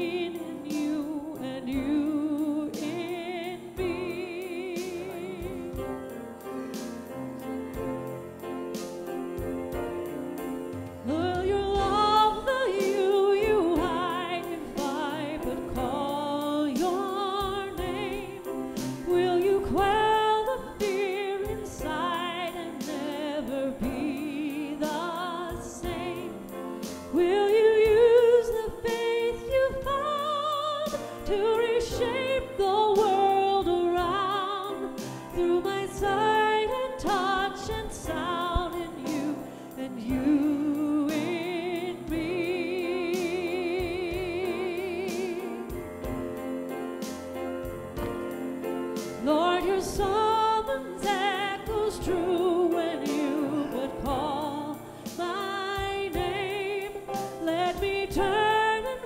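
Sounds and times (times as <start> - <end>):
person singing a hymn with vibrato: 11.1 - 26.4, 27.2 - 45.7, 49.2 - 59.0.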